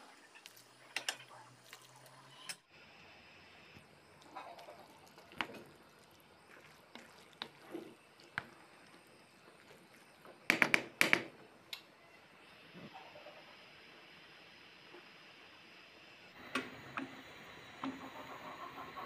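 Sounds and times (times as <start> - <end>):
faint hiss: 11.4 - 17.8.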